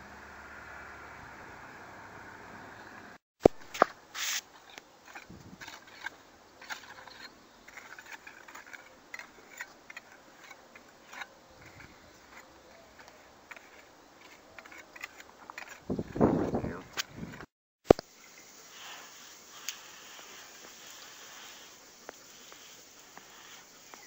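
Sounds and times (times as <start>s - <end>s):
rubber spatula scraping tile joints: 4.2s - 16.3s.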